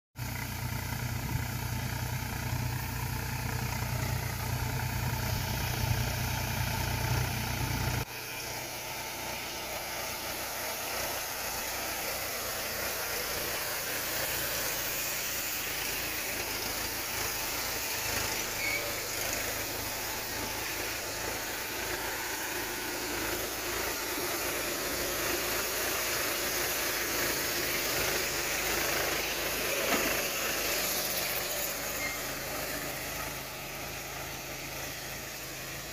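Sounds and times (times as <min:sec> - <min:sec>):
tractor engine: 0:00.2 - 0:35.9
steady hiss of spray: 0:08.0 - 0:35.9.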